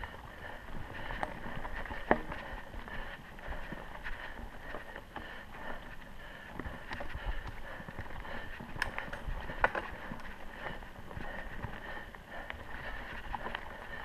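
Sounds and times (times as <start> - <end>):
bike rattling clicks and knocks: 0.0 - 5.8, 6.5 - 12.0
bike tyres rolling over dirt: 0.0 - 14.0.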